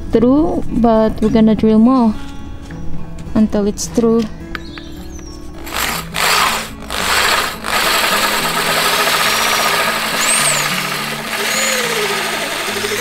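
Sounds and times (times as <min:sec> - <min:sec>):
soft background music: 0:00.0 - 0:07.6
power drill cutting fiberglass: 0:05.6 - 0:13.0.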